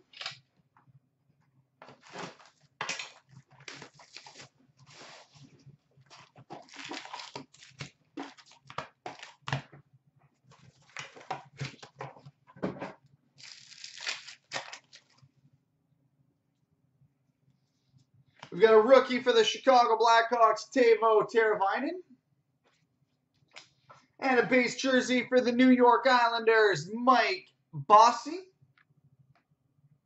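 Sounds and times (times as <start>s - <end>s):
wrapper rustling and tearing: 1.9s - 5.5s, 6.1s - 9.6s, 13.4s - 15.2s.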